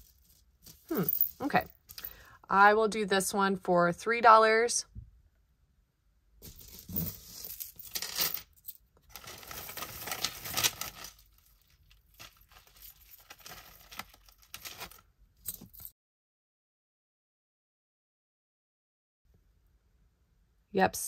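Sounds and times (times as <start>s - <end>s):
metal jewelry clinking and rattling: 0.0s - 2.1s, 6.4s - 15.9s.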